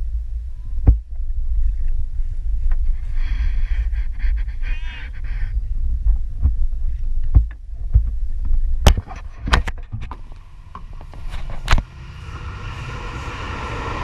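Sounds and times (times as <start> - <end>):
low uneven rumble: 0.0 - 14.0
paddles knocking on wooden hull: 0.8 - 1.1, 6.0 - 11.1.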